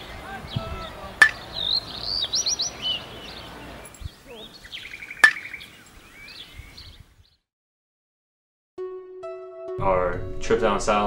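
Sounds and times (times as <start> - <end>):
small birds chirping: 0.0 - 7.5
sharp crack: 0.7 - 1.6, 5.2 - 5.6.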